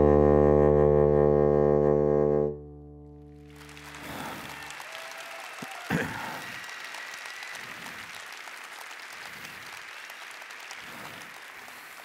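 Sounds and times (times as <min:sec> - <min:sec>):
audience applauding: 0:03.2 - 0:12.0.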